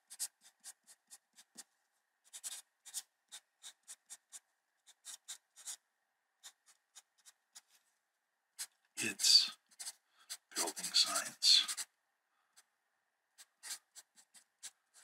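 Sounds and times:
felt-tip marker writing on paper: 0.0 - 1.7, 2.3 - 5.8, 6.4 - 7.8, 8.6 - 11.9, 13.4 - 15.0.

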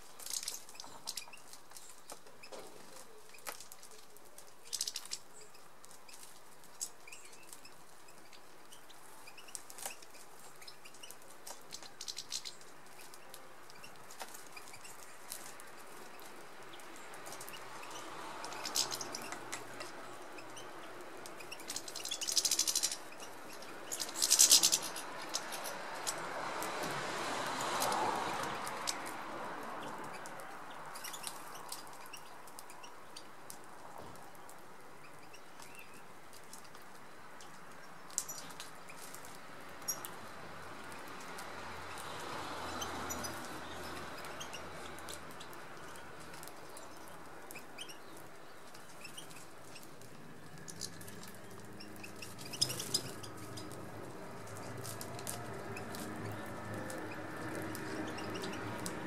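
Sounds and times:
seeds being pecked and cracked: 0.0 - 34.6, 35.3 - 59.0
birds chirping: 0.5 - 26.2, 41.8 - 59.0
wings fluttering: 9.4 - 26.7, 42.8 - 59.0.

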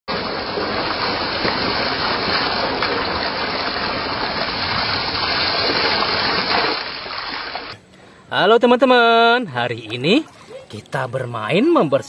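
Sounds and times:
water splashing into mud: 0.1 - 7.8.

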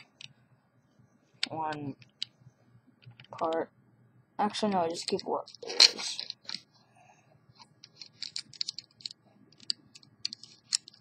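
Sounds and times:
plastic bricks clicking together: 7.8 - 11.0.

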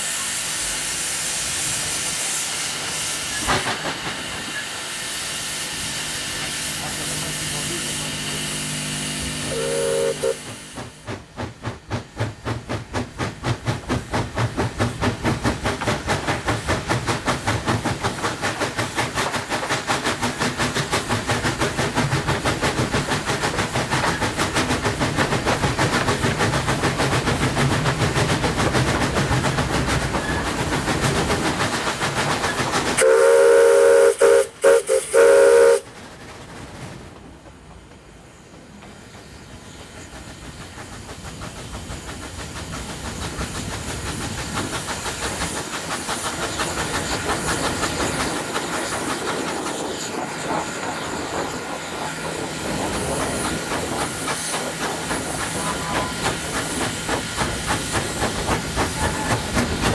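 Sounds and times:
steam locomotive chuffing: 0.0 - 59.9
steam whistle: 9.4 - 10.6, 33.0 - 35.9, 58.9 - 59.6.

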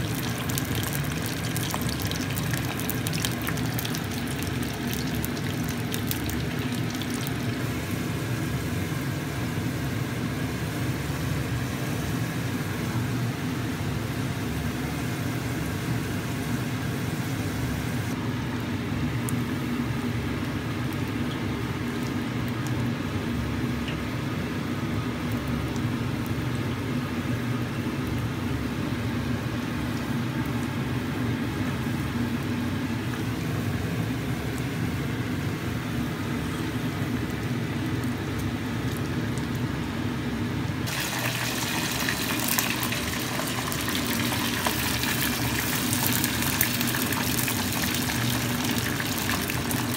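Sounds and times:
oil sizzling: 0.0 - 18.2, 40.8 - 49.9.

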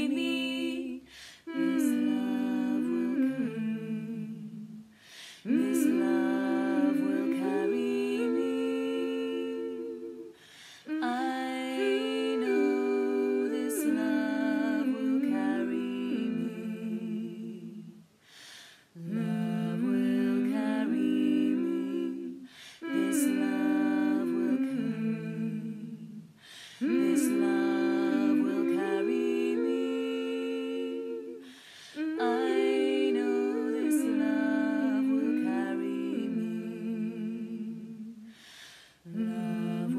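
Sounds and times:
woman humming in harmony: 0.0 - 4.8, 5.4 - 18.0, 19.0 - 38.3.

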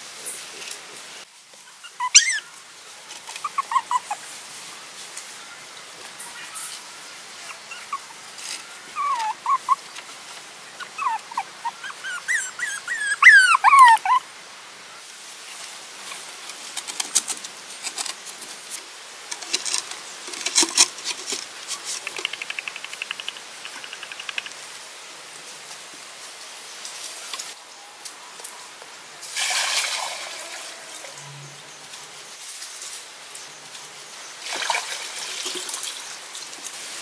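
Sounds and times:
puppies whimpering: 1.8 - 2.4, 3.4 - 4.2, 7.4 - 9.8, 10.8 - 14.2.

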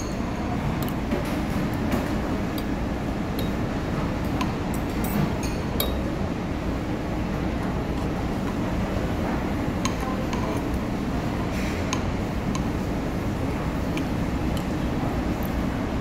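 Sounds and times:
low room hum: 0.0 - 16.0
spoon and fork clinking bowls: 3.4 - 3.6, 4.4 - 6.0.

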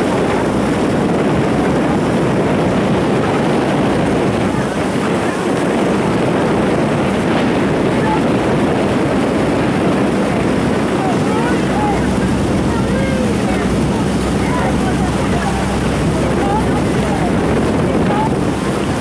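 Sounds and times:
outboard motor running: 0.0 - 19.0
wind on microphone: 0.0 - 19.0.

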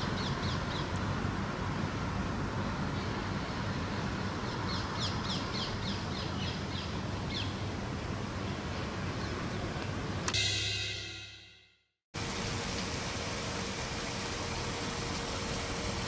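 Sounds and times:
low traffic rumble: 0.0 - 10.3
sudden bright sound: 10.3 - 12.0.

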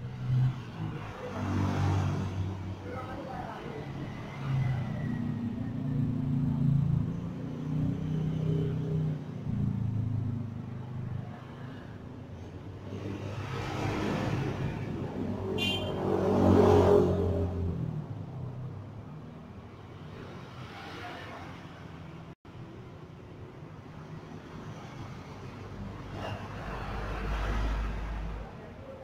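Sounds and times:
passing road vehicles: 0.0 - 29.0.

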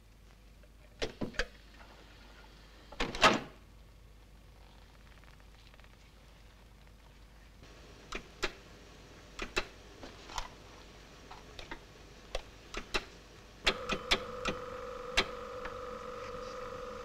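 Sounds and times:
steady electronic tone: 13.8 - 17.0.

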